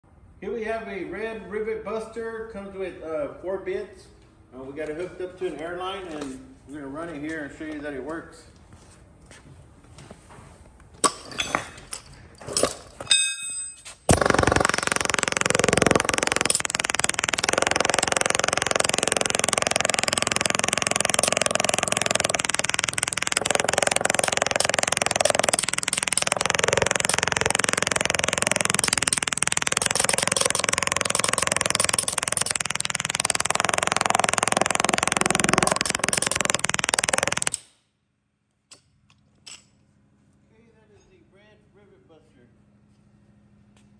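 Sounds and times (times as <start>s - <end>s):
air hammer hammering into wood: 14.1s - 37.6s
faint clicks: 14.2s - 37.6s.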